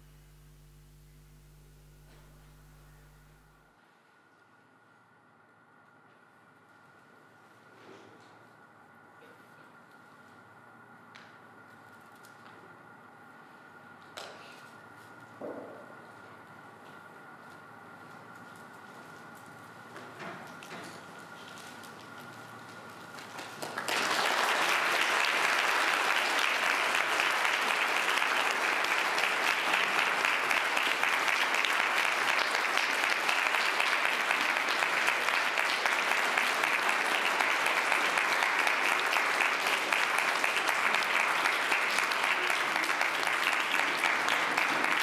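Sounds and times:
faint steady tone: 0.0 - 3.7
audience applauding: 23.1 - 45.0.

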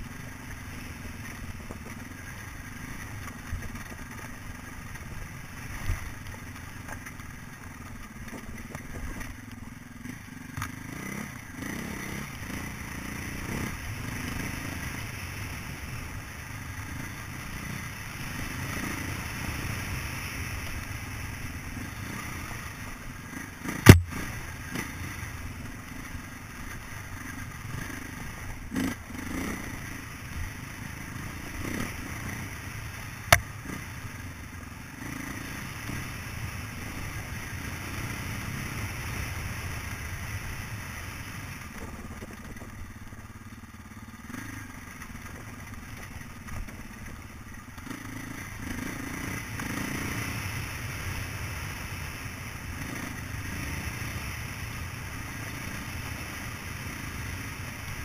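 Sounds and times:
motorcycle engine running: 0.0 - 58.0
sharp loud click: 23.8 - 24.3.

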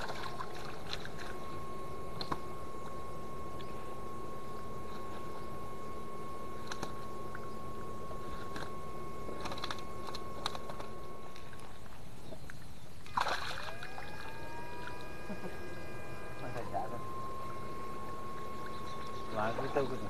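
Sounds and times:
water splashing: 0.0 - 1.4, 11.3 - 15.0
electric fish shocker humming: 0.0 - 20.0
scattered clicks: 9.4 - 11.5.

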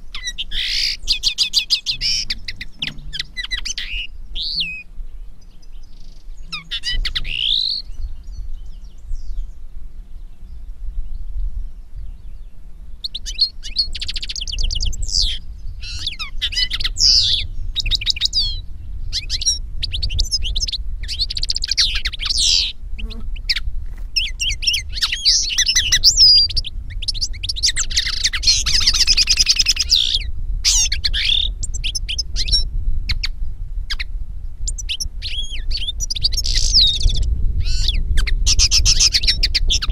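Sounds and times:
finches twittering: 0.2 - 9.3, 24.2 - 33.3, 34.7 - 39.9
low hum: 1.0 - 6.8.

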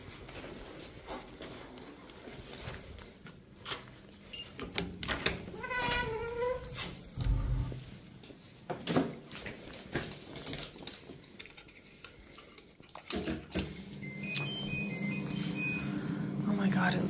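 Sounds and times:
door squealing: 5.5 - 7.7.

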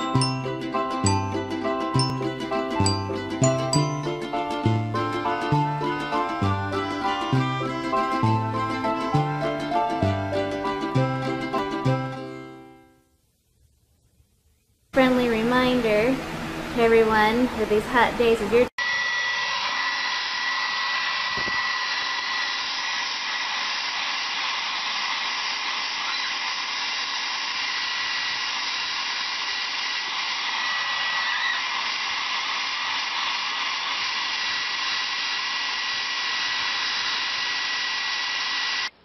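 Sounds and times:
hair dryer running: 5.0 - 9.9, 18.7 - 39.0.

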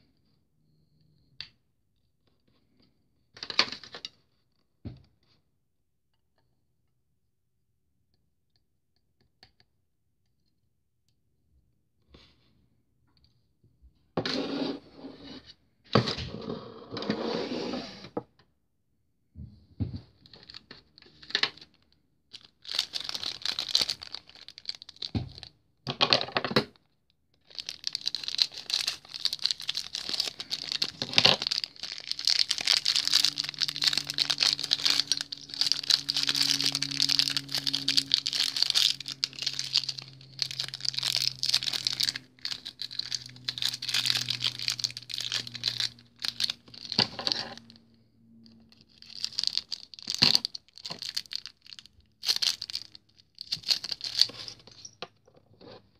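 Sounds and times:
plastic packaging crinkling: 22.3 - 25.5, 27.4 - 47.8, 48.7 - 54.8.

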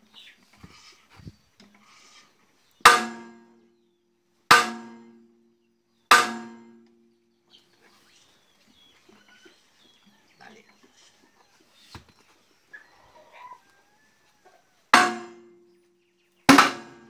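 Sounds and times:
hammer clanging on steel: 2.9 - 3.7, 4.5 - 5.2, 6.1 - 7.0, 15.0 - 15.5, 16.5 - 17.0.

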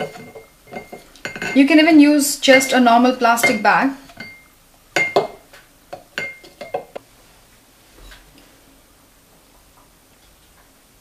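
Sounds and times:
utensils and glassware clinking: 0.0 - 1.8, 3.4 - 5.4, 6.0 - 7.0.

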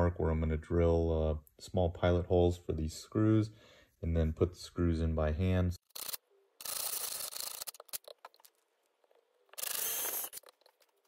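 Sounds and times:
cordless drill whining: 9.5 - 10.5.

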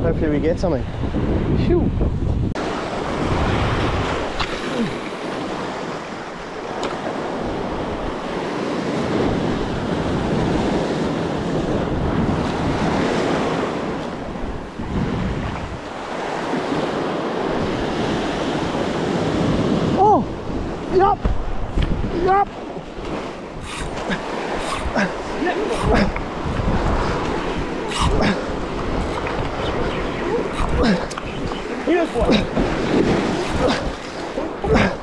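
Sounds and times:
sea surf over rocks: 0.0 - 35.0
wind buffeting microphone: 0.0 - 35.0.

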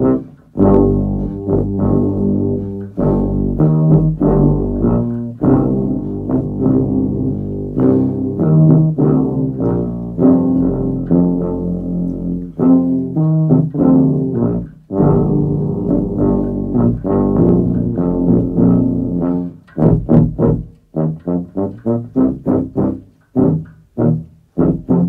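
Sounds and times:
overdubbed tuba parts: 0.0 - 25.0
sustained low bass line: 0.0 - 25.0.

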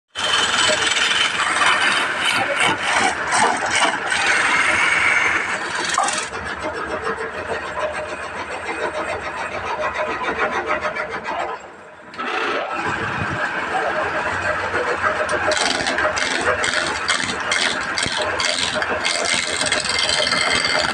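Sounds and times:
wood lathe running: 0.1 - 20.9
turning tool rasping into wood: 0.2 - 20.9.

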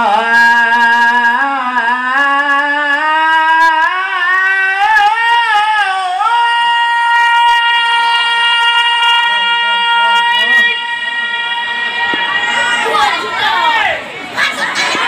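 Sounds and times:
man singing devotional chant: 0.0 - 12.6.

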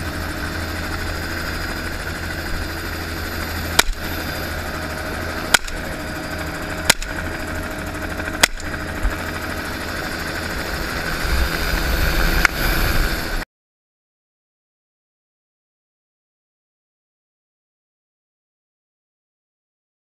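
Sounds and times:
helicopter turbine and rotor drone: 0.0 - 13.5
shotgun blasts: 3.7 - 4.1, 5.4 - 5.9, 6.8 - 7.2, 8.4 - 8.7.

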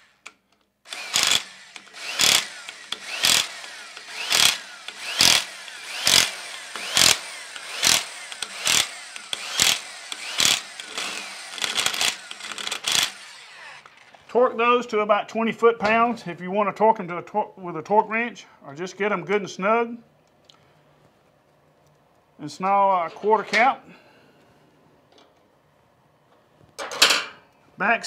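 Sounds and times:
electric impact wrench bursts: 0.9 - 14.3
tool motor spinning: 0.9 - 14.3.

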